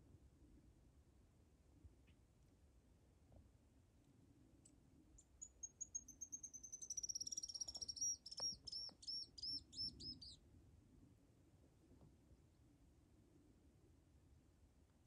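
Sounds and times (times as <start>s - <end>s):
bird singing: 5.2s - 10.4s.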